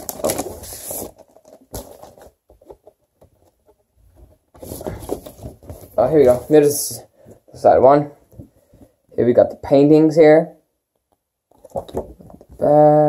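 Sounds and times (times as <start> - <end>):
stiff paper rustling: 0.0 - 7.0.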